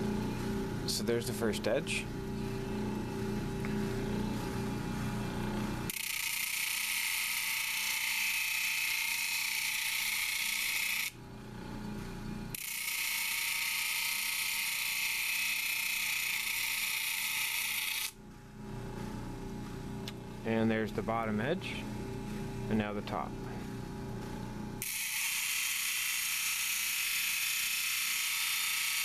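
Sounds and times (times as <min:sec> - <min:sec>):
low machine hum: 0:00.0 - 0:06.1, 0:09.6 - 0:12.6, 0:18.1 - 0:24.9.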